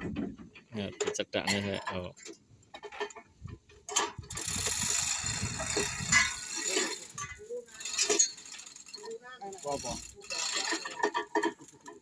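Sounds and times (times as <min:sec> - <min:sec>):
steel chain rattling: 0:03.8 - 0:12.0
ratchet clicking: 0:04.2 - 0:12.0.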